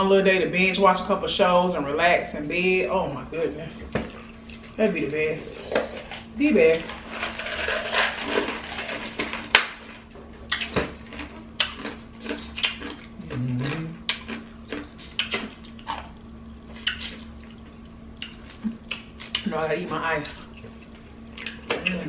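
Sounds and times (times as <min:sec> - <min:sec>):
low hum: 0:00.0 - 0:22.0
wet smacking and chewing: 0:10.5 - 0:19.5, 0:20.2 - 0:22.0.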